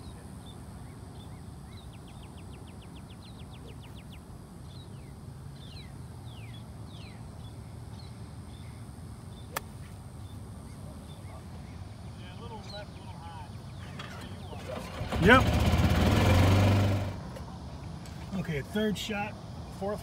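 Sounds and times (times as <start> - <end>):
birds trilling and whistling: 0.0 - 9.6, 10.2 - 15.7
golf club striking ball: 9.5 - 9.8.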